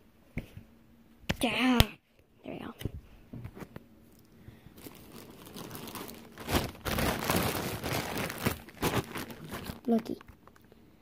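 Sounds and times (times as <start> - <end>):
bag rustling and crinkling: 4.7 - 10.6.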